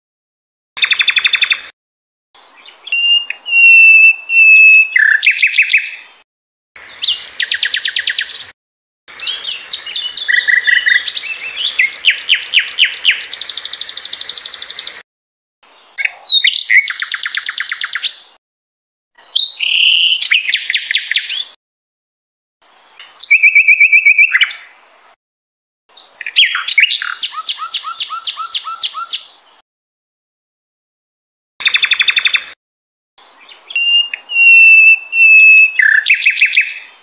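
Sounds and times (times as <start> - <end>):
songbird singing chirps and trills: 2.4 - 6.2, 6.8 - 8.5, 9.1 - 15.0, 15.6 - 18.4, 19.2 - 21.6, 22.6 - 25.2, 25.9 - 29.6, 33.2 - 37.0.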